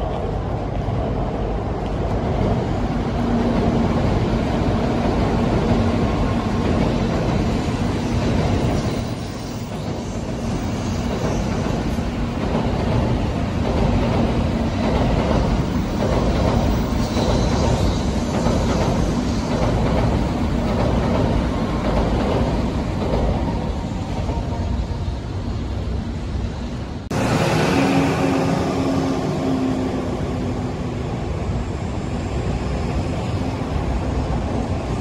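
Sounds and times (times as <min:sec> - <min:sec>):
train passing overhead rumble: 0:00.0 - 0:35.0.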